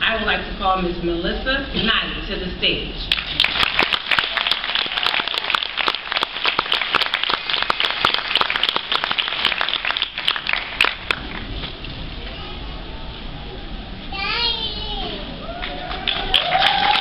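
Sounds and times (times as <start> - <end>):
audience applauding: 3.1 - 11.6, 15.4 - 17.0.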